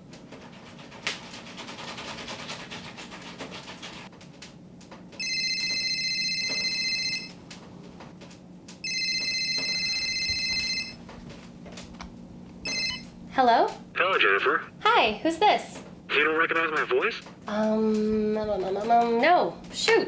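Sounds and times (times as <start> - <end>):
cordless phone ringing: 5.2 - 7.4, 8.8 - 11.0, 12.6 - 13.1.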